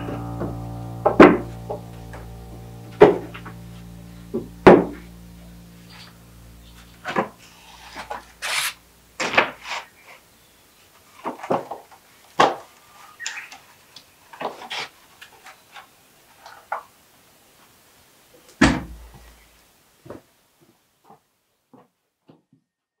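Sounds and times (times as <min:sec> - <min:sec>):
wood scraping: 0:05.9 - 0:10.2.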